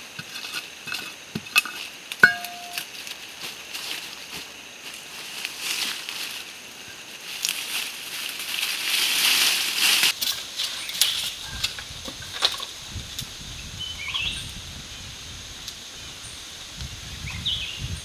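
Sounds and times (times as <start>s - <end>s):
steady high hiss: 0.0s - 18.0s
dry leaves rustling and crackling: 1.7s - 12.6s.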